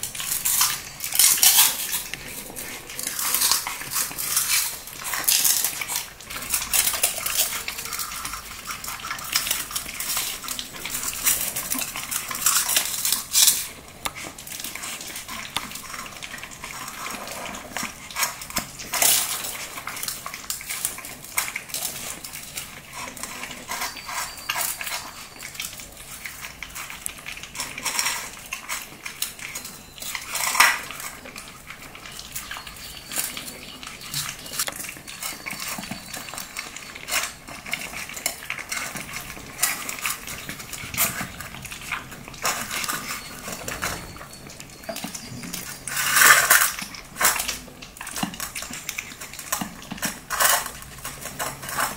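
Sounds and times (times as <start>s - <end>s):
kibble clinking in metal bowl: 0.0s - 51.9s.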